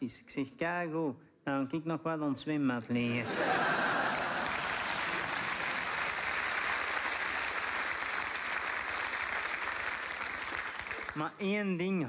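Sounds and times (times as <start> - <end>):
audience applauding: 3.3 - 11.4.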